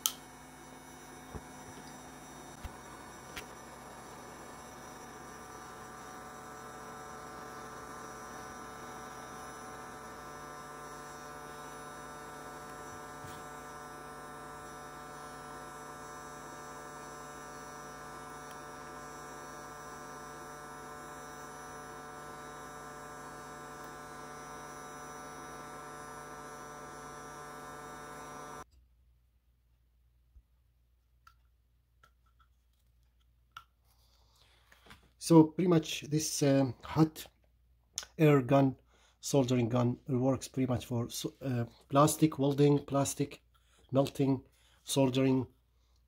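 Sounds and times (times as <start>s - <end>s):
hot air gun fan humming: 0.0s - 28.7s.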